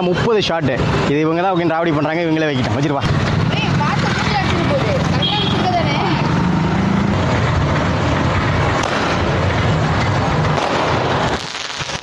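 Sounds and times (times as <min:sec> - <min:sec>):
fireworks hissing and crackling: 0:08.7 - 0:12.0.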